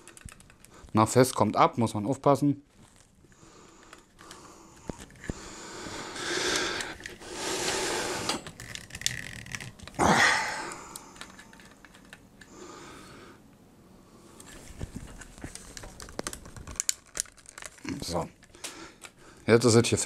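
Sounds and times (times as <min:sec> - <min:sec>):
heavy breaths: 0:03.2 - 0:08.5, 0:10.0 - 0:14.9, 0:18.5 - 0:19.5
tripod head clicks and rubbing: 0:11.0 - 0:12.5.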